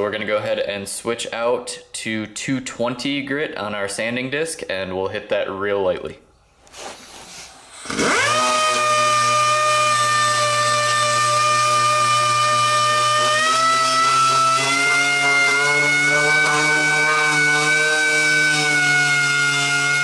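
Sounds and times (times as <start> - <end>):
disc sander sanding: 7.6 - 20.0.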